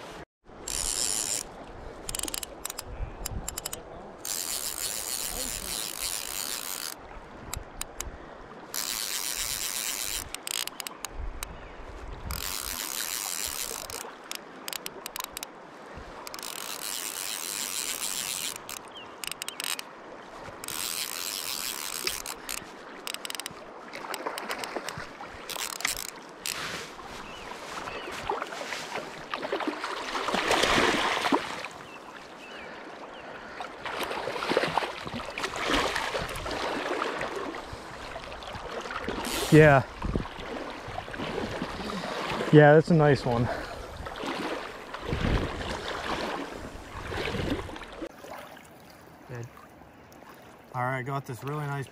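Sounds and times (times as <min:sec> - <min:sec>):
fly reel drag ratcheting: 0:00.6 - 0:08.1, 0:08.7 - 0:11.5, 0:12.2 - 0:15.5, 0:16.2 - 0:19.9, 0:20.5 - 0:26.8, 0:39.1 - 0:39.6
water splashing: 0:12.1 - 0:32.8, 0:33.4 - 0:51.8.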